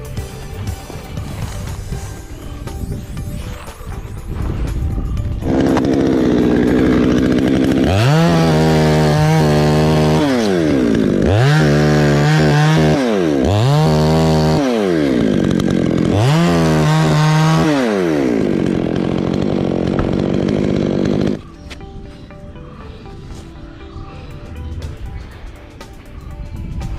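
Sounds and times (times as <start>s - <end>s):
chainsaw revving: 4.4s - 21.6s.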